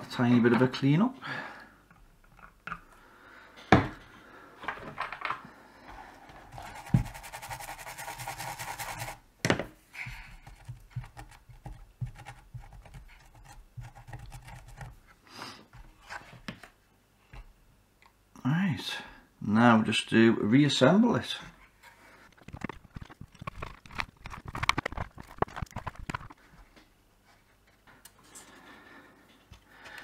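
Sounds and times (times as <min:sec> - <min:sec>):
cotton bud scrubbing a circuit board: 0:06.6 - 0:09.2.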